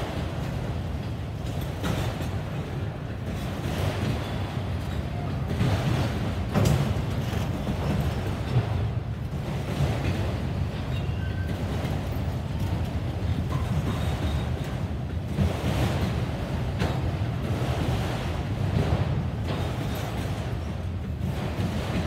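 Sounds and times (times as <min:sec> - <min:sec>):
sharp knocks of train cars: 0:00.0 - 0:22.0
steel wheels rumbling on rails: 0:00.0 - 0:22.0.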